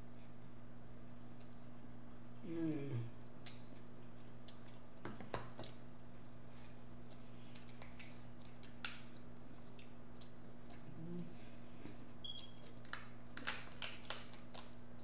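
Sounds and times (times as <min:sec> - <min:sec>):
crab shells cracking: 0:07.6 - 0:10.4, 0:12.5 - 0:14.8.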